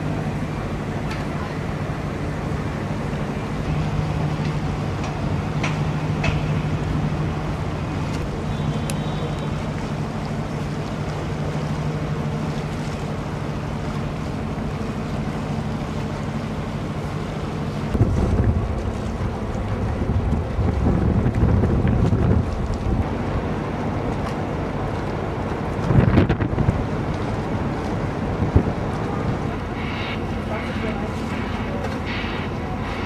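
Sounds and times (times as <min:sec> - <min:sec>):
ferry engine drone: 0:00.0 - 0:33.0
water washing along hull: 0:00.0 - 0:33.0
wind buffeting microphone: 0:17.8 - 0:30.5.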